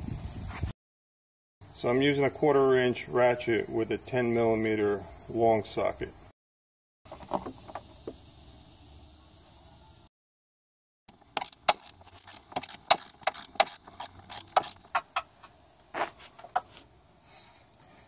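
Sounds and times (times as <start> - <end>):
hand ratchet clicking: 11.1 - 15.0.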